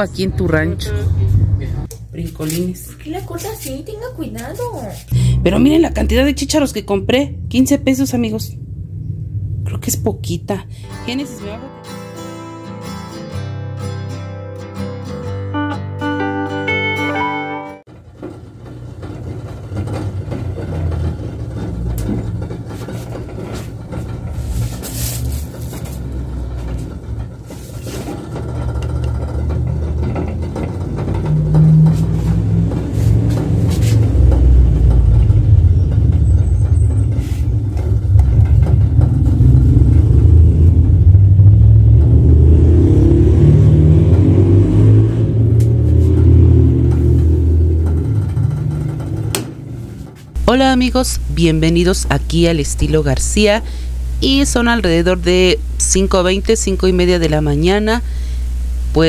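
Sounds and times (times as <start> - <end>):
low rumble: 0.0 - 2.2, 5.1 - 11.6, 28.2 - 59.0.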